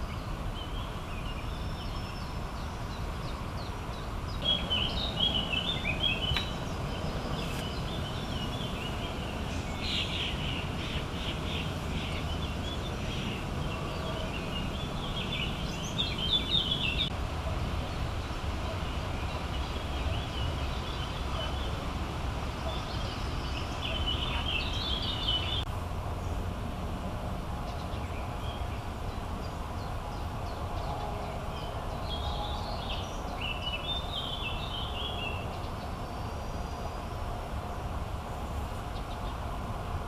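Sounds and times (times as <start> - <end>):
birds chirping: 0.0 - 26.5, 27.6 - 39.6.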